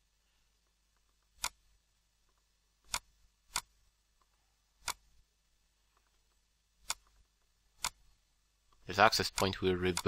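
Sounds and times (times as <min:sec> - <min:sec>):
computer mouse clicks: 0:01.0 - 0:01.6, 0:02.3 - 0:03.7, 0:06.8 - 0:07.2, 0:08.7 - 0:10.0.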